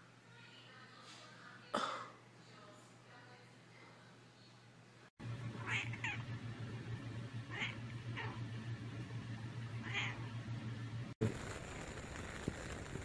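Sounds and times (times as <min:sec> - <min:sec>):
cat meowing: 0:05.6 - 0:06.2, 0:09.8 - 0:10.2.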